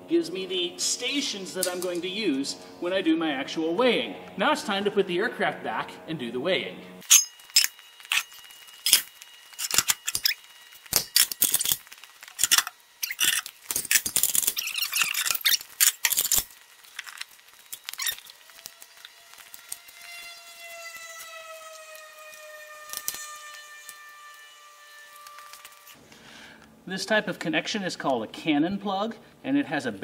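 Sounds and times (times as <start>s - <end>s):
faint tone sliding downward: 18.0s - 26.0s.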